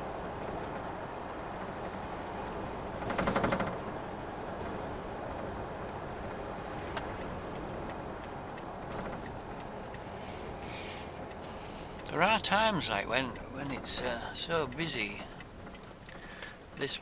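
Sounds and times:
vehicle road and engine noise: 0:00.0 - 0:17.0
fast rattle of knocks: 0:03.0 - 0:03.9
faint ticks: 0:05.8 - 0:17.0.

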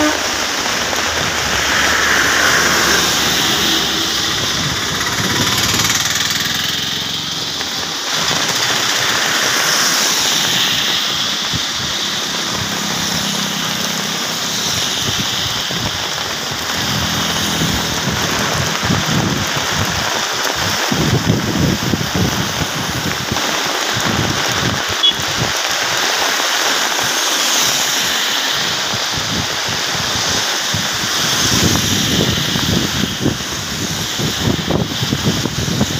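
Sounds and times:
tyres swishing through water: 0:00.0 - 0:21.0
vehicle engine hum: 0:00.0 - 0:25.4
heavy rain on wet road: 0:00.0 - 0:35.9.

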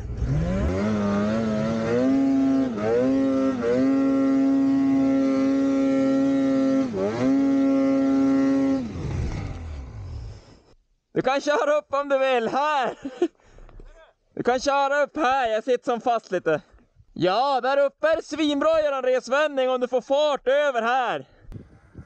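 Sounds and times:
snowmobile engine revving: 0:00.0 - 0:10.7.

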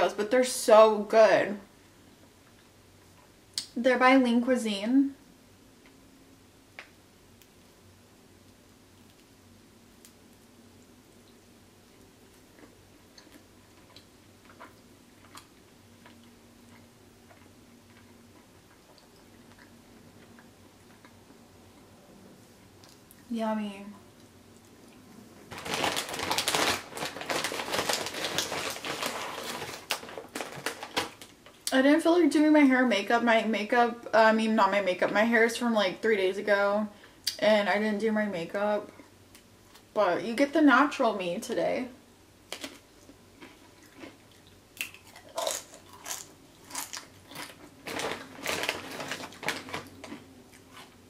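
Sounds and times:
plastic chip bag crinkling: 0:25.4 - 0:31.6, 0:42.5 - 0:51.0.

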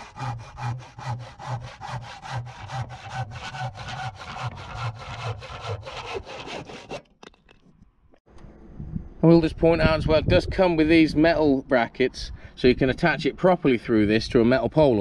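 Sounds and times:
handsaw cutting timber: 0:00.0 - 0:07.1.

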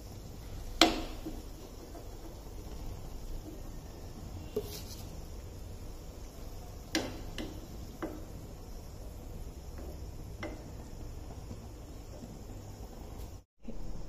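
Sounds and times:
metal spoon tapping frying pan: 0:06.9 - 0:08.5.

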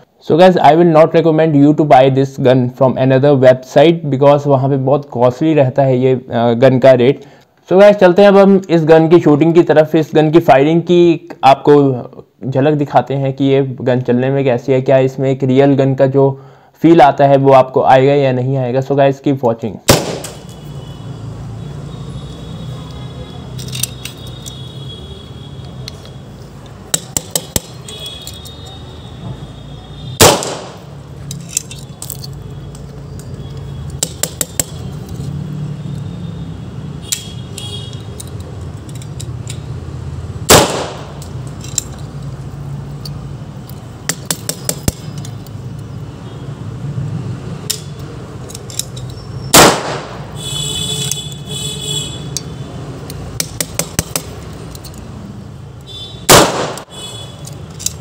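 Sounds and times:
cork gun bangs: 0:19.9 - 0:20.5, 0:30.2 - 0:30.8, 0:40.5 - 0:41.3, 0:49.5 - 0:50.2, 0:56.3 - 0:56.9
metallic clicks of gun handling: 0:23.6 - 0:24.6, 0:31.2 - 0:35.2, 0:37.0 - 0:39.6, 0:41.2 - 0:42.4, 0:47.7 - 0:49.2, 0:52.4 - 0:55.1, 0:56.8 - 0:58.0.

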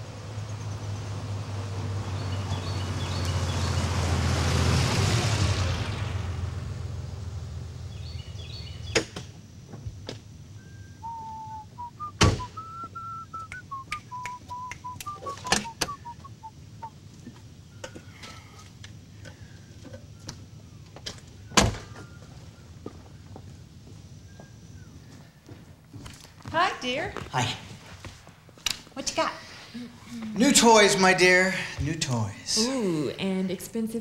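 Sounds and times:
car engine: 0:00.0 - 0:18.2
person whistling a tune: 0:10.6 - 0:16.5
car doors thunking shut: 0:12.2 - 0:12.6, 0:15.3 - 0:16.0, 0:21.5 - 0:22.0.

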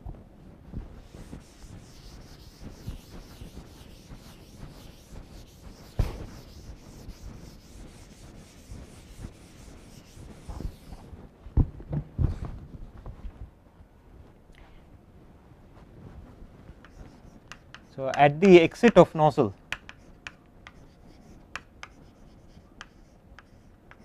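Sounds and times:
duster rubbing on chalkboard: 0:00.8 - 0:11.2, 0:16.0 - 0:19.1, 0:19.7 - 0:24.0.

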